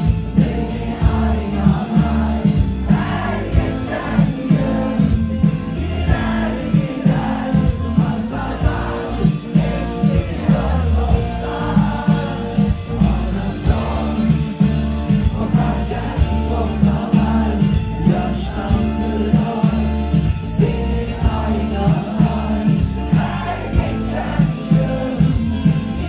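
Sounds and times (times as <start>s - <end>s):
bass guitar: 0.0s - 26.0s
drum kit: 0.0s - 26.0s
electric guitar: 0.0s - 26.0s.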